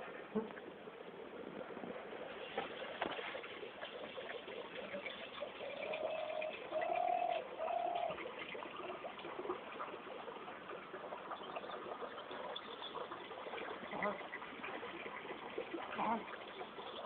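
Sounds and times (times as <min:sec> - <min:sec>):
dove cooing: 0:05.0 - 0:08.2.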